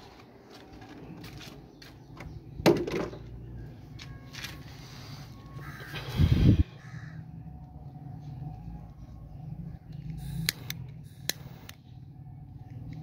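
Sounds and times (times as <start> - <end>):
steady low hum: 3.2 - 13.0.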